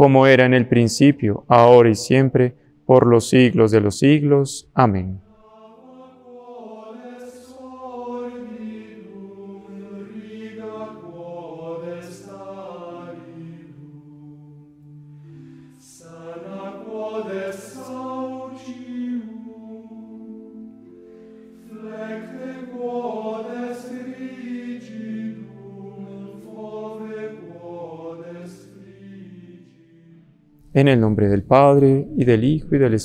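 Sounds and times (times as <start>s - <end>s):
choral chant: 5.3s - 30.6s.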